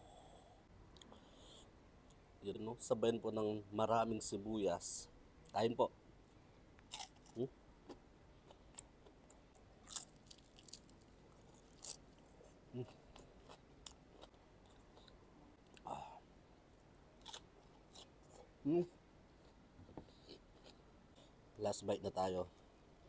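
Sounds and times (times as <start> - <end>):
chewing and crunching: 6.8 - 7.5, 8.4 - 15.9, 17.2 - 18.5.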